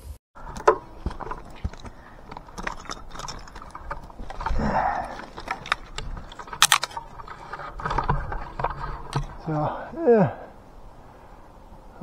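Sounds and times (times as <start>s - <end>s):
metal climbing gear clinking: 0.4s - 10.0s.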